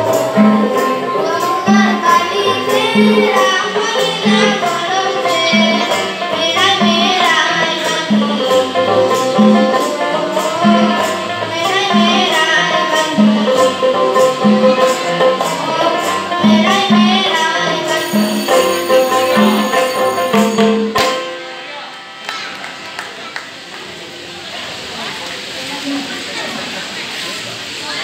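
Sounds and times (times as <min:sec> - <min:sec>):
boy singing: 0:00.0 - 0:20.6
harmonium: 0:00.0 - 0:23.4
guitar: 0:00.0 - 0:27.8.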